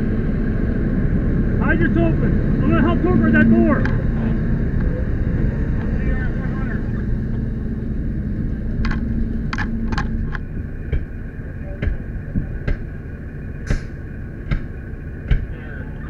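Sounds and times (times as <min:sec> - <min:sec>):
diesel engine running: 0:00.0 - 0:16.0
sharp clicks and knocks: 0:08.8 - 0:11.2, 0:11.8 - 0:12.9, 0:13.6 - 0:15.5.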